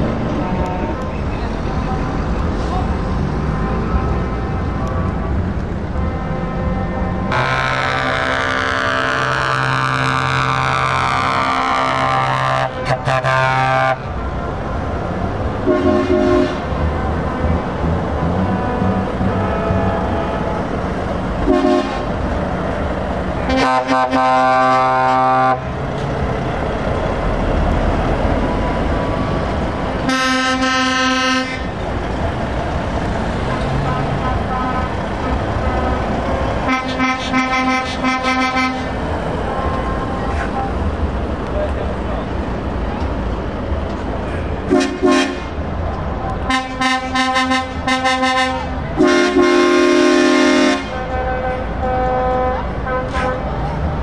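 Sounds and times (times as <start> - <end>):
heavy truck engine running: 0.0 - 54.0
truck air horn blasts: 6.0 - 14.1, 15.6 - 16.7, 18.6 - 20.8, 21.4 - 22.2, 23.4 - 25.7, 30.0 - 31.8, 33.7 - 35.0, 35.6 - 39.0, 44.7 - 45.6, 46.5 - 53.6.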